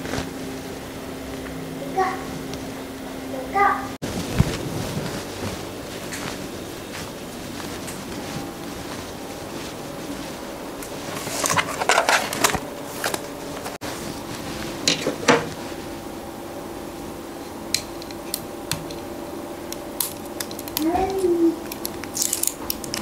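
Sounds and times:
faint hum: 0:00.0 - 0:23.0
plastic objects rustling and clicking: 0:10.8 - 0:13.8, 0:20.0 - 0:23.0.

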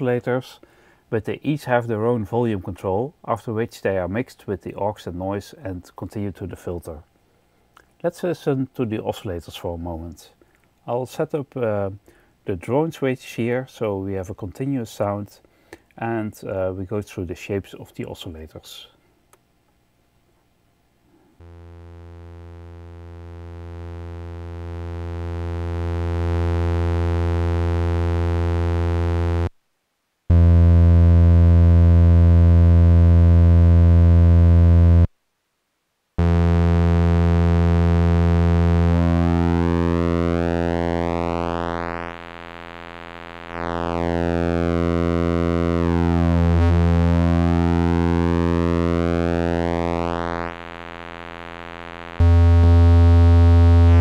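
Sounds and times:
synthesizer droning low note: 0:21.4 - 0:29.5, 0:30.3 - 0:35.1, 0:36.2 - 0:54.0.

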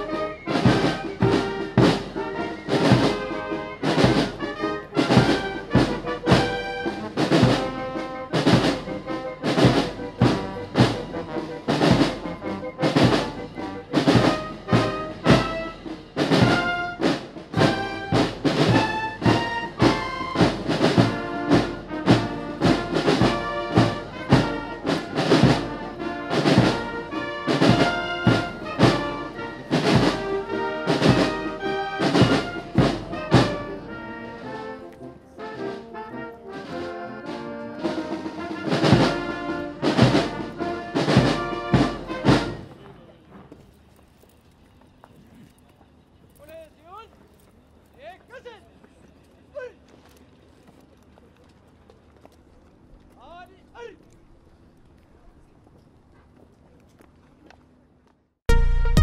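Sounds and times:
snare and bass drums: 0:00.0 - 0:33.9, 0:37.8 - 0:42.7, 0:58.5 - 0:59.0
trumpets and trombones: 0:00.0 - 0:43.9, 0:58.5 - 0:59.0.

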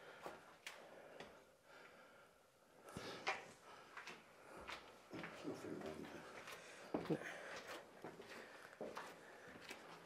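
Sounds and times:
breathing: 0:00.0 - 0:05.0, 0:06.2 - 0:10.0
footsteps on plank floor: 0:03.2 - 0:10.0.

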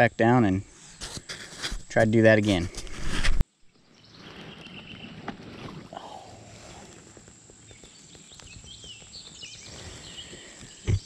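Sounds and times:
faint outdoor background noise: 0:00.0 - 0:11.0.

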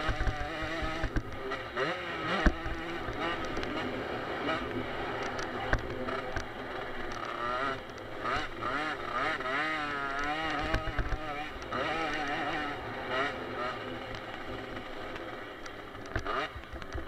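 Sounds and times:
motocross bike engine revving: 0:00.0 - 0:17.0.

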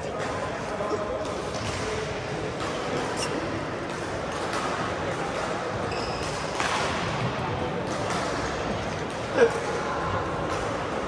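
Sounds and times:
murmur of voices: 0:00.0 - 0:11.0
racket striking shuttlecock: 0:01.2 - 0:07.2
shoe squeak: 0:03.0 - 0:03.5, 0:05.8 - 0:06.4.

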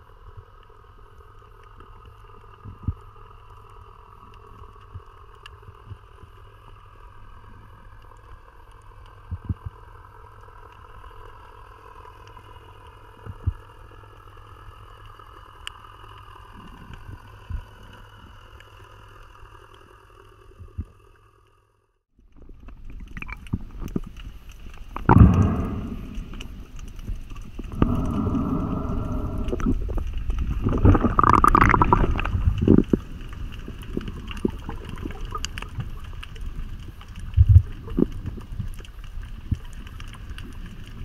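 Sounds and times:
underwater low rumble: 0:00.0 - 0:21.6, 0:22.2 - 0:41.0
faint hum: 0:22.7 - 0:38.9.

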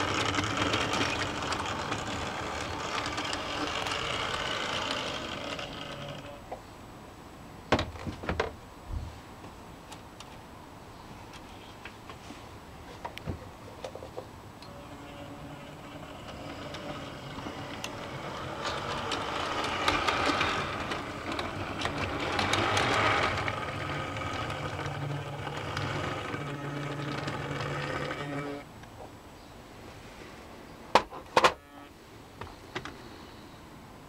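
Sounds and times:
model train motor humming: 0:00.0 - 0:06.4, 0:14.6 - 0:28.6
wheels clicking over rail joints: 0:00.0 - 0:06.4, 0:13.8 - 0:28.6.

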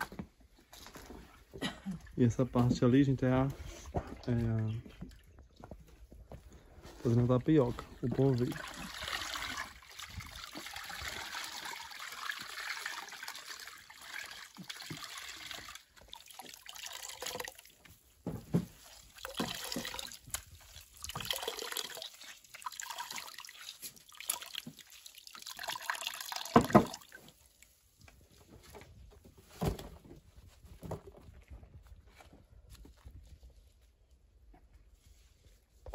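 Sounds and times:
water trickling into a pan: 0:08.0 - 0:18.0, 0:18.8 - 0:27.8.

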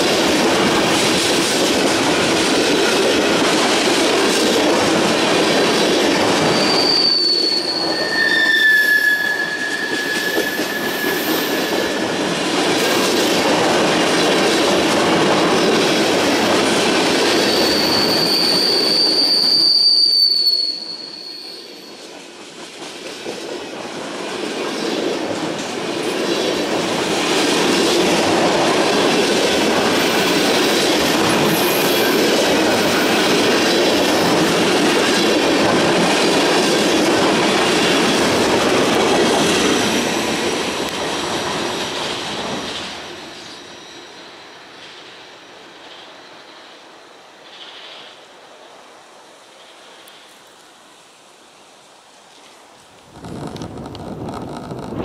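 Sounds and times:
train wheels rumbling on rails: 0:00.0 - 0:50.9, 0:51.6 - 0:55.0
high wheel squeals: 0:06.4 - 0:12.2, 0:17.3 - 0:22.0, 0:43.3 - 0:44.7.

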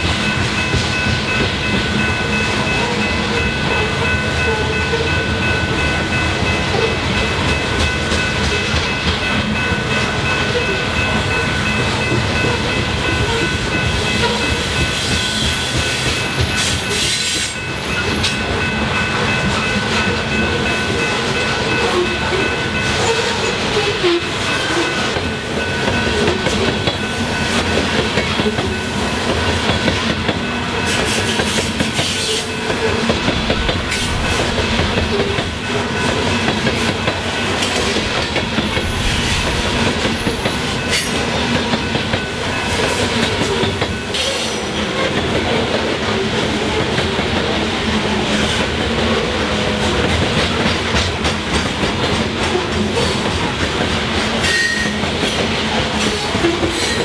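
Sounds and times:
train cars rumbling past: 0:00.0 - 0:57.0
steel wheels clacking over rail joints: 0:06.1 - 0:47.6
high ringing tones: 0:32.2 - 0:44.6.

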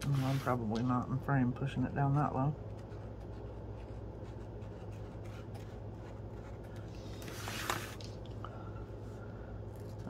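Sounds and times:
journal sliding on mat: 0:00.0 - 0:00.8, 0:07.0 - 0:08.2
steady low hum: 0:00.0 - 0:10.0.

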